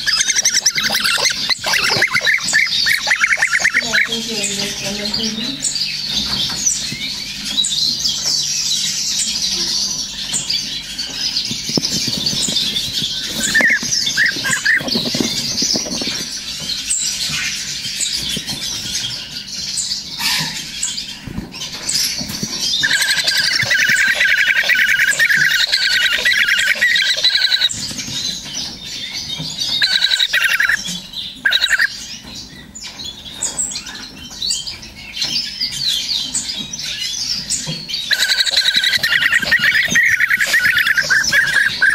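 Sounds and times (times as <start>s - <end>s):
nestlings cheeping: 0.0s - 8.2s, 11.2s - 17.5s, 21.9s - 27.9s, 38.0s - 41.9s.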